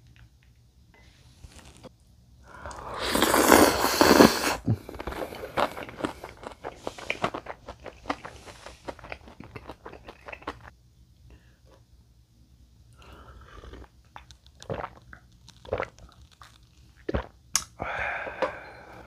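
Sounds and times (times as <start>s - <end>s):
noodles slurped: 2.6s - 10.7s, 13.2s - 17.4s
wet chewing: 2.6s - 10.7s, 13.5s - 17.7s.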